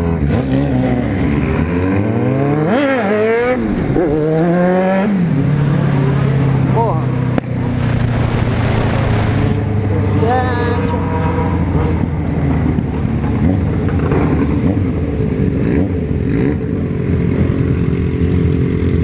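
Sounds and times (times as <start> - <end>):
motorcycle engine running: 0.0 - 19.0
wind rushing over microphone: 3.3 - 17.6.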